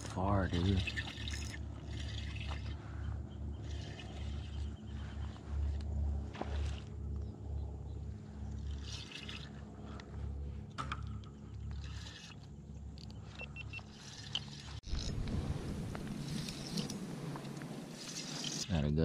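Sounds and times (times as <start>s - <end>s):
low rumble: 0.0s - 13.4s, 14.5s - 18.4s
water lapping and trickling: 0.0s - 18.8s
water splashing: 8.4s - 10.0s.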